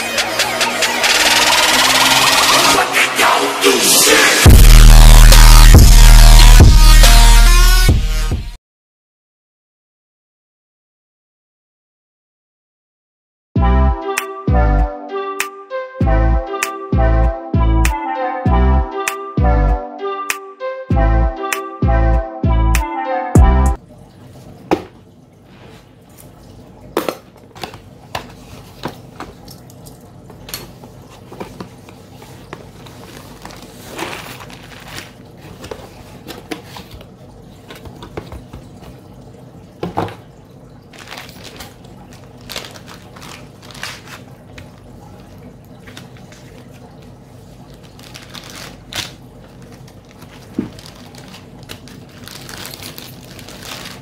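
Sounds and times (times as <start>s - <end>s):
plastic bags crinkling: 31.3s - 38.0s, 40.9s - 54.0s.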